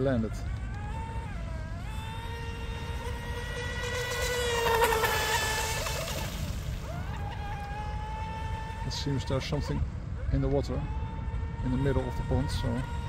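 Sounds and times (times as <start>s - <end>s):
boat motor high-pitched whine: 0.0s - 13.0s.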